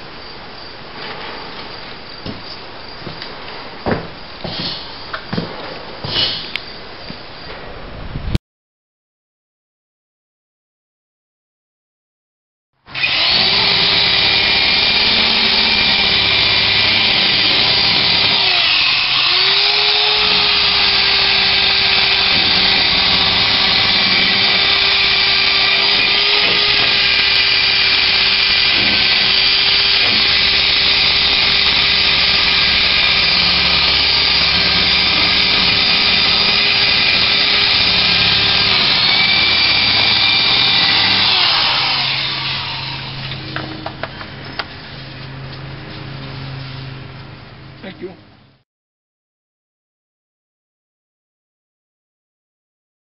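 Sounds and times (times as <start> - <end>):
electric drill with wire brush: 12.9 - 43.4.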